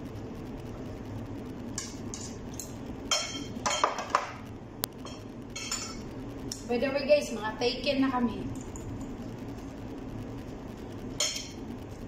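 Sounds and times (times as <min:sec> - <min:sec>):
spoons clinking against bowls: 0:01.8 - 0:04.3, 0:05.0 - 0:06.0, 0:11.2 - 0:11.6.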